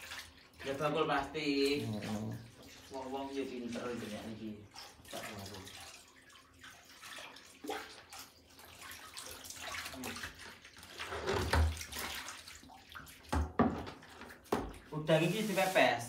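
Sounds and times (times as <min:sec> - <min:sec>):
water running into bucket: 0:00.0 - 0:16.0
water splashing: 0:00.0 - 0:16.0
plastic bucket knocks: 0:11.2 - 0:11.8, 0:13.3 - 0:14.8.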